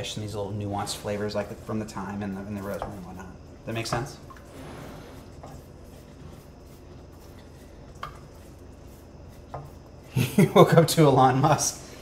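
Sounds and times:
spoon scraping pot: 0.8s - 10.1s.

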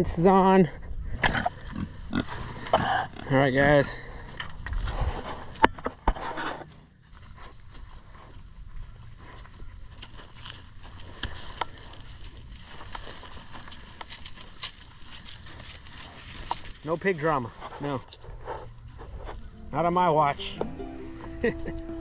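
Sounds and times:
footsteps in dry leaves: 6.3s - 22.0s.

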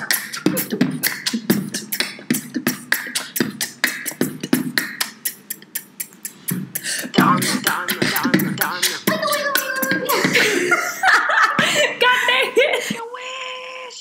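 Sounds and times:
person beatboxing: 0.0s - 10.6s.

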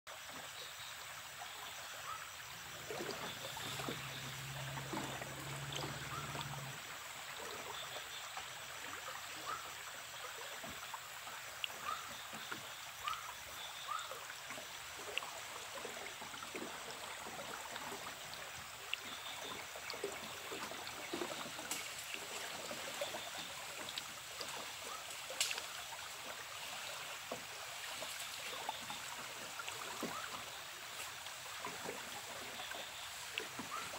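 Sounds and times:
river water rushing: 2.0s - 12.1s.

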